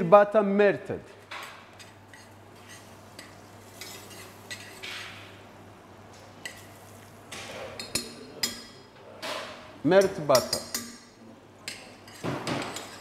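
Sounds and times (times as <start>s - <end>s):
metal spoon scraping saucepan: 1.8s - 5.1s, 11.7s - 13.0s.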